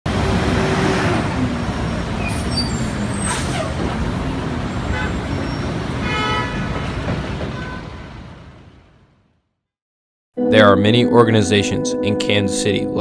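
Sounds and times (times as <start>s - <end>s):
heavy vehicles rumbling: 0.1s - 9.2s.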